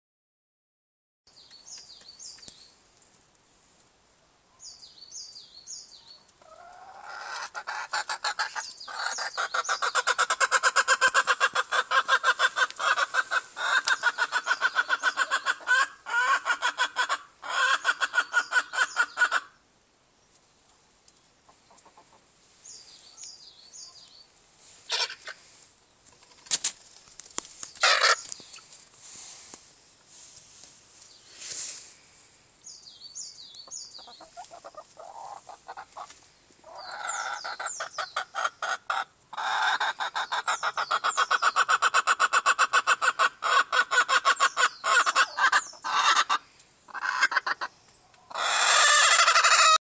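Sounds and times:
chickens cackling: 0:06.4 - 0:19.6, 0:21.5 - 0:22.3, 0:24.8 - 0:25.6, 0:27.7 - 0:28.6, 0:33.6 - 0:49.8.

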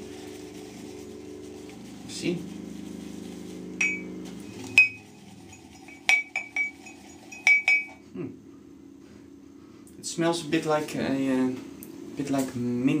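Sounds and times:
low steady hum: 0:00.0 - 0:13.0
ceramic mug clinking: 0:03.8 - 0:08.0.

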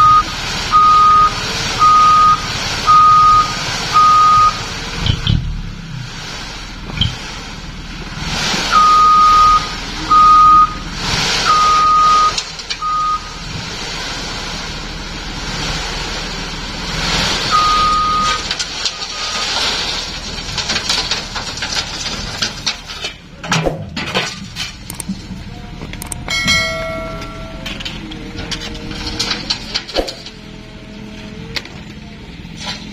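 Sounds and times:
truck warning beeper: 0:00.0 - 0:04.7, 0:08.7 - 0:13.4, 0:17.4 - 0:19.5, 0:25.5 - 0:28.4
truck engine: 0:00.0 - 0:32.9
sand sliding: 0:05.8 - 0:22.9
scattered clicks: 0:24.8 - 0:25.2, 0:25.9 - 0:26.3.

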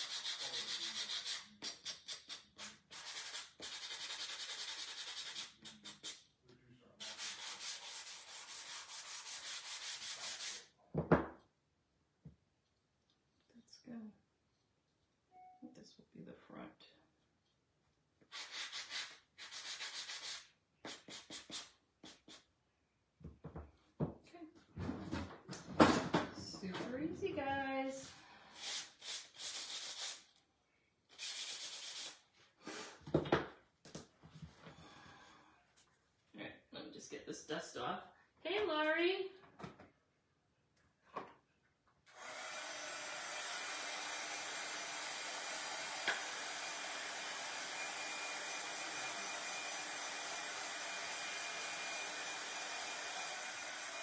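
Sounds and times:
sanding block rubbing wood: 0:00.0 - 0:06.2, 0:07.0 - 0:10.7, 0:18.3 - 0:22.4, 0:28.6 - 0:30.3, 0:31.2 - 0:32.2.

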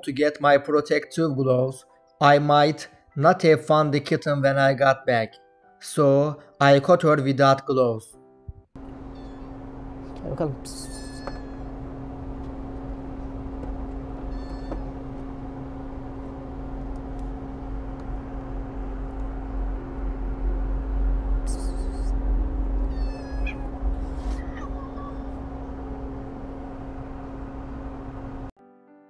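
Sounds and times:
low hum: 0:08.8 - 0:28.5
kitten meowing: 0:09.1 - 0:09.5, 0:10.7 - 0:11.7, 0:14.2 - 0:14.9, 0:21.4 - 0:22.2, 0:22.8 - 0:25.4
kitten hissing: 0:21.4 - 0:22.2, 0:22.8 - 0:25.3.

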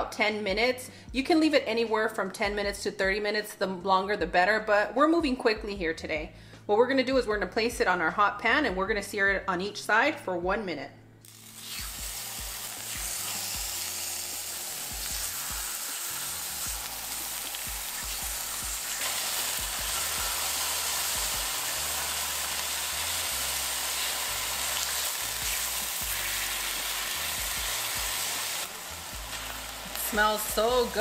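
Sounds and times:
beef sizzling in skillet: 0:11.2 - 0:31.0.

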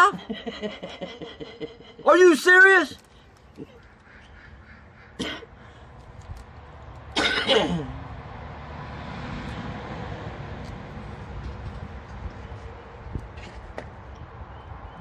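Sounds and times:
man clearing throat: 0:05.2 - 0:05.5, 0:07.2 - 0:08.0.

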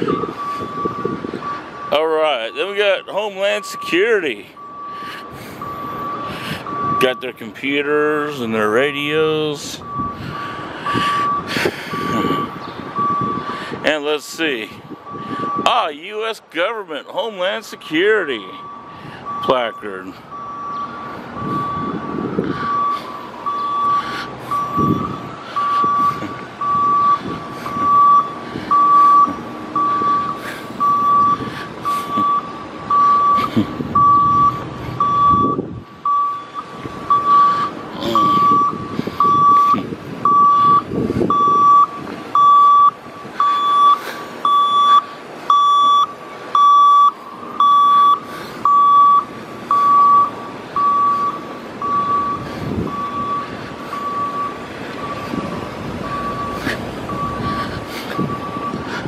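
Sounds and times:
reversing alarm beeping: 0:00.0 - 0:07.4, 0:08.0 - 0:13.5, 0:15.0 - 0:15.9, 0:17.4 - 0:58.9
street traffic noise: 0:00.0 - 0:59.0.

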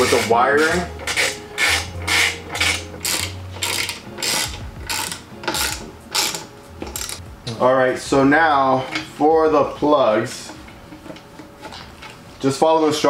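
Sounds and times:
ratchet wrench clicking: 0:00.0 - 0:07.2.

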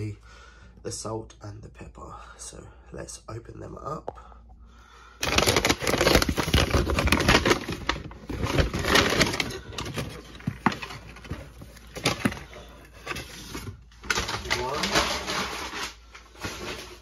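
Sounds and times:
paper bag tearing and crumpling: 0:05.2 - 0:17.0.

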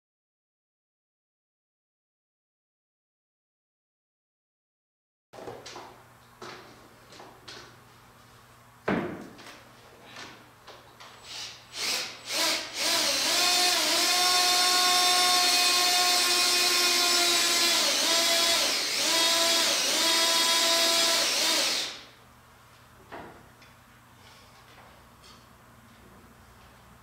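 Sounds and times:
power drill whining: 0:11.2 - 0:22.1.

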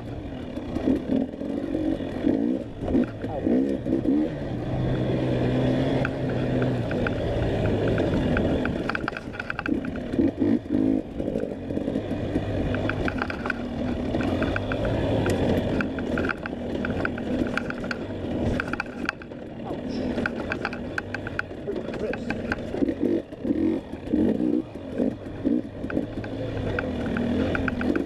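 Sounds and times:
dirt bike engine revving: 0:00.0 - 0:28.0
clicks and clatter: 0:05.7 - 0:28.0.

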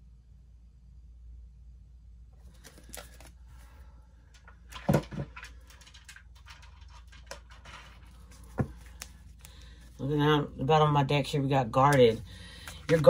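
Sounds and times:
cards rustling: 0:02.4 - 0:10.2, 0:11.8 - 0:13.0.

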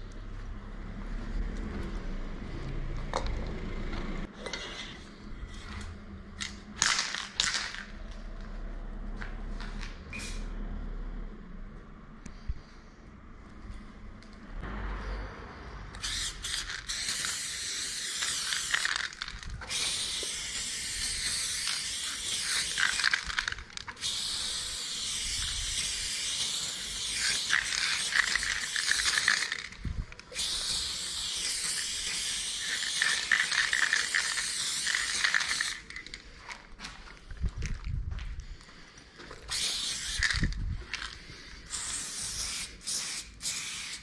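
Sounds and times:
spray paint can hissing: 0:15.9 - 0:36.2, 0:39.5 - 0:44.0.

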